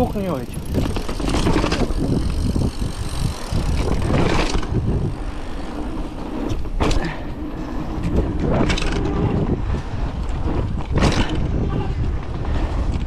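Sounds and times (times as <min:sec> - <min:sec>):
bicycle frame rattle: 0:00.0 - 0:13.0
bicycle tyre noise: 0:00.0 - 0:13.0
wind rumbling on microphone: 0:00.0 - 0:13.0.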